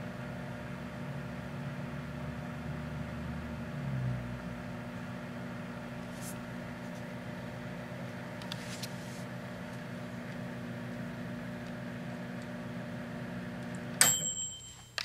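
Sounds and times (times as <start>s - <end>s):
microwave oven humming: 0.0s - 14.7s
brief ring: 14.0s - 15.0s.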